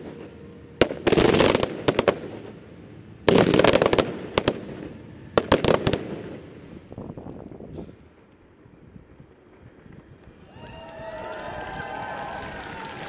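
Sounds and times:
firework volleys of sharp shots: 0.0 - 8.3.

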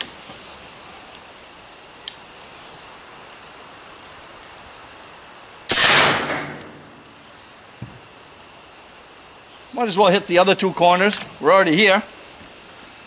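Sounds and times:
air rifle shot: 5.7 - 6.9.

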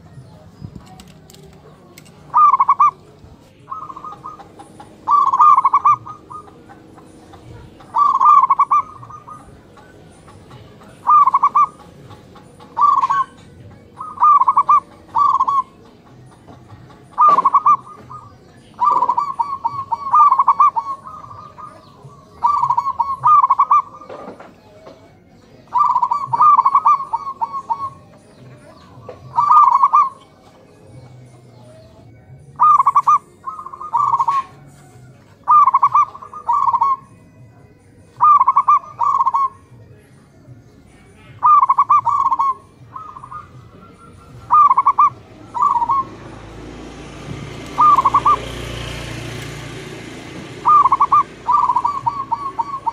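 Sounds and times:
doves cooing: 0.0 - 52.9.

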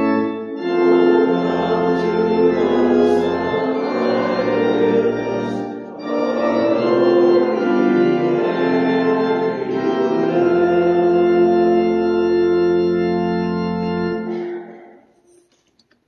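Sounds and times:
church organ chords: 0.0 - 15.4.

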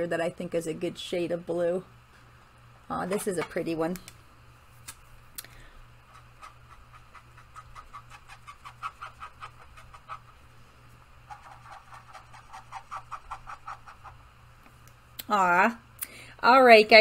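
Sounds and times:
steady low hum: 0.0 - 17.0
marker scribbling on paper: 6.1 - 10.4, 11.3 - 14.2.

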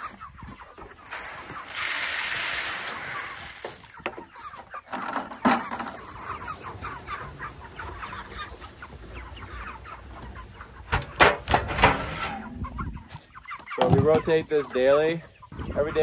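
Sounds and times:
chickens clucking: 0.0 - 16.0
knocks and bangs: 10.9 - 12.6.

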